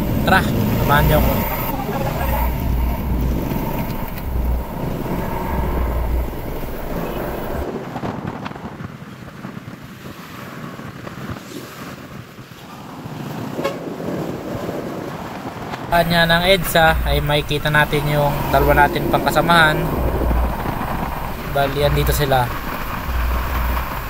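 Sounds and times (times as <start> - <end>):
heavy low rumble: 0.0 - 7.7, 15.9 - 24.0
traffic noise: 0.0 - 24.0
wind buffeting microphone: 0.0 - 24.0.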